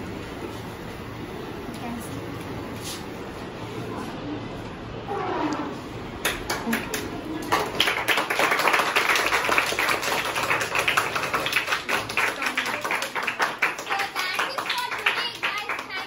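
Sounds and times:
children clapping: 6.2s - 16.0s.

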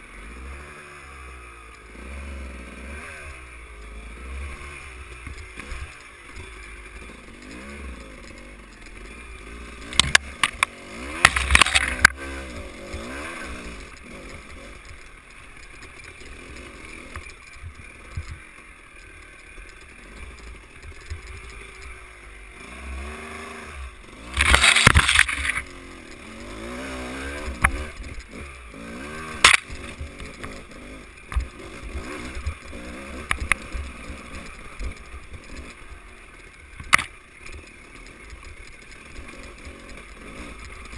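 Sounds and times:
dirt bike engine revving: 0.0s - 40.9s
loud rough bursts of noise: 22.4s - 35.8s.

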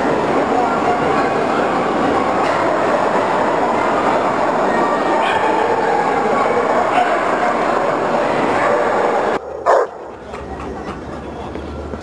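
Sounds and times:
crowd din in a hall: 0.0s - 12.0s
dog barking: 8.6s - 10.0s.

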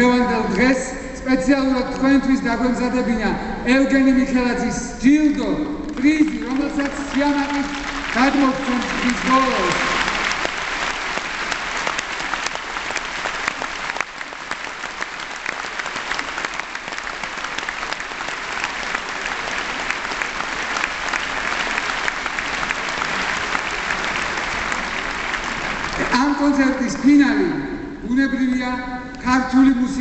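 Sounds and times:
audience applauding: 5.8s - 26.8s.

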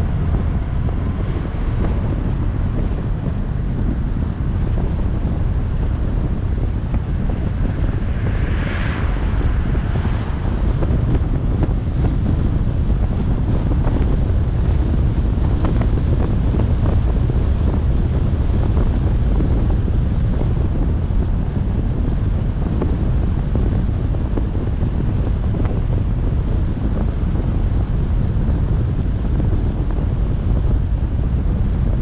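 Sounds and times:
low road rumble from car: 0.0s - 32.0s
wind buffeting microphone: 0.0s - 32.0s
car swishing past: 7.4s - 12.8s.

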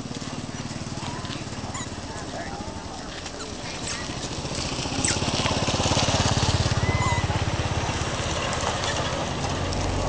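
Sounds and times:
small petrol engine running: 0.0s - 10.0s.

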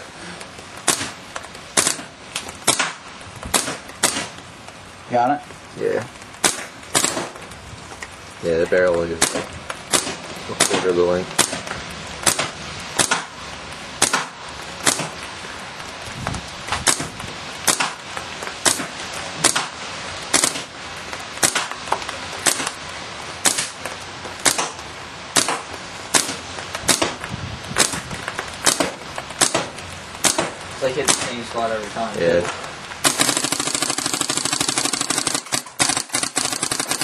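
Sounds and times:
paintball marker firing: 0.8s - 1.2s, 1.8s - 4.4s, 6.4s - 7.4s, 9.2s - 13.3s, 14.0s - 15.2s, 17.7s - 18.0s, 18.6s - 19.8s, 25.4s - 27.2s, 27.8s - 31.5s, 33.0s - 37.0s.

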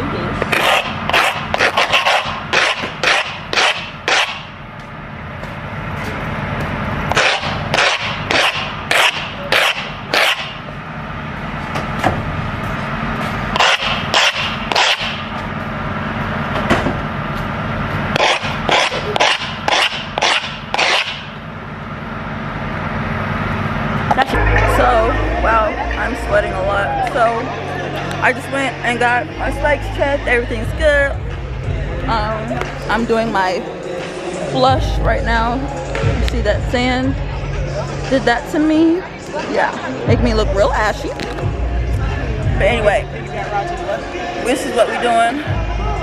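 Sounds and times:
metal scraping on brick paving: 0.4s - 4.4s.

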